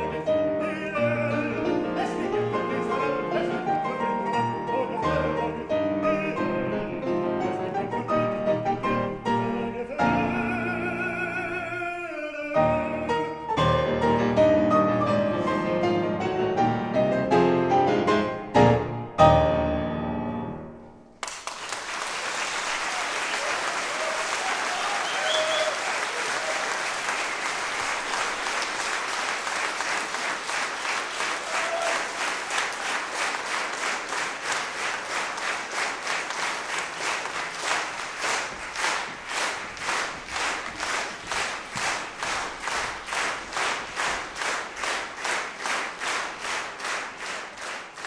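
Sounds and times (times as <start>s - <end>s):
audience clapping: 21.1s - 48.0s.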